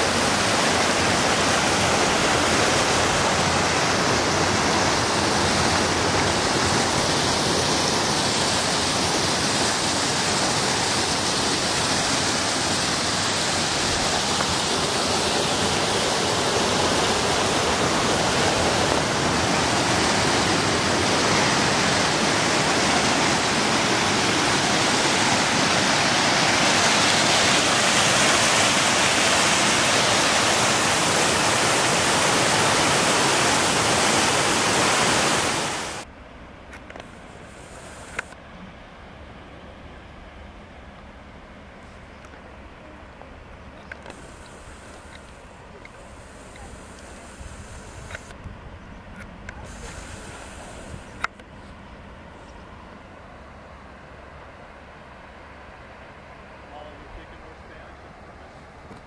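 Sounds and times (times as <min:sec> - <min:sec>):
stream rushing over rocks: 0:00.0 - 0:36.1.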